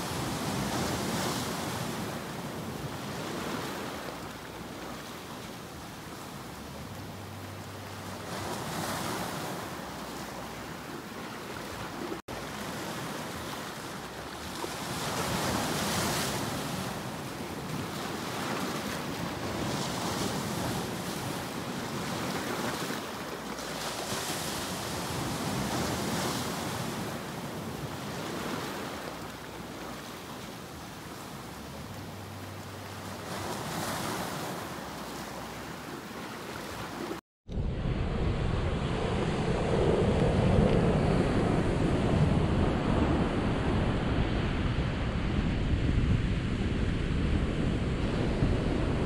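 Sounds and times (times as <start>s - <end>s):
sea waves breaking on rocks: 0.0s - 6.7s, 8.0s - 37.2s.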